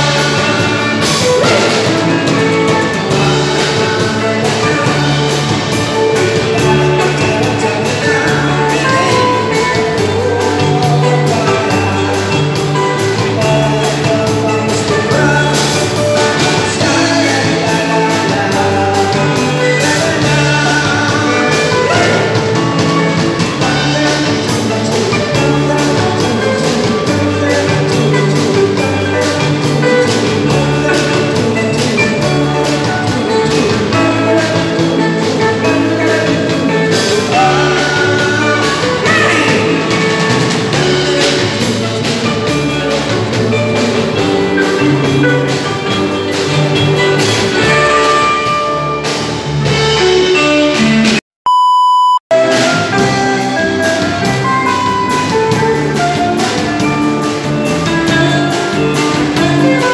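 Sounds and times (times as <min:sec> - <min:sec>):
live band playing dance music: 0:00.0 - 0:59.9
electronic beep: 0:51.5 - 0:52.2.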